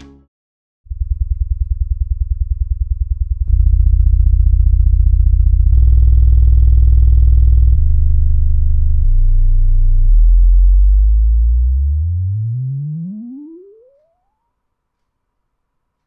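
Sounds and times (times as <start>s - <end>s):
subwoofer buzzy low hum: 0.9s - 14.2s.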